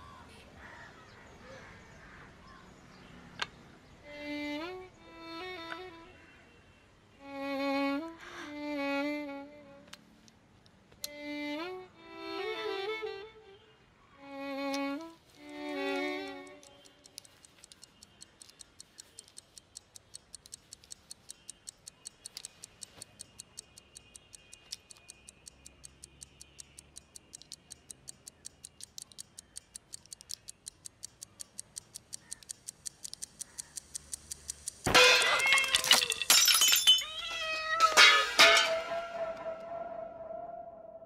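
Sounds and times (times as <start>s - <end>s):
pocket watch ticking: 14.7s - 35.8s
cat yowling: 35.2s - 36.1s, 36.9s - 38.1s
crash: 37.8s - 39.2s.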